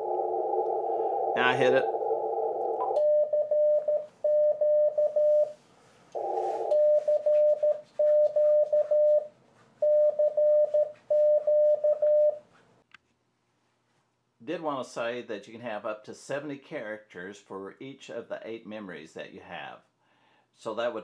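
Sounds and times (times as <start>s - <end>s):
morse code beeps: 2.8s - 5.6s, 6.2s - 12.4s.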